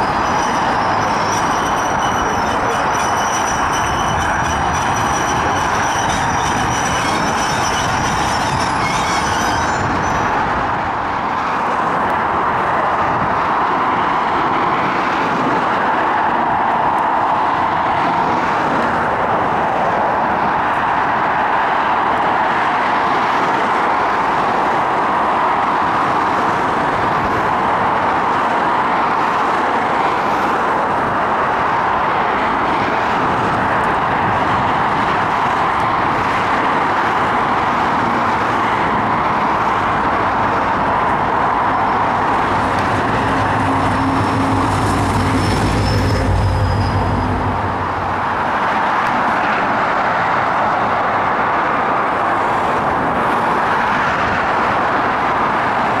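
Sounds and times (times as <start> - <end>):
railway wheel squeal: 0.0 - 12.0, 21.9 - 49.7
road traffic noise: 0.0 - 56.0.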